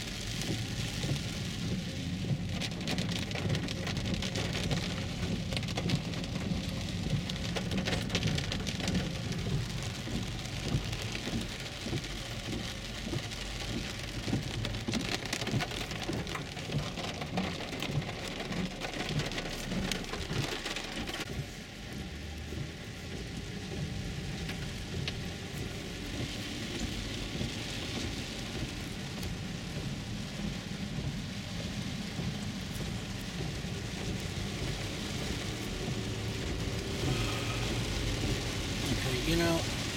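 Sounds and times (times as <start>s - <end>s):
heavy rain on car roof: 0.0s - 39.9s
tyres rumbling on wet road: 0.0s - 39.9s.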